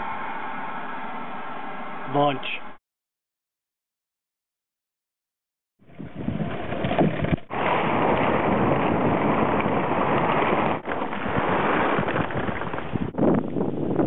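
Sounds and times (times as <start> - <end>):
wind buffeting microphone: 5.8 - 14.0.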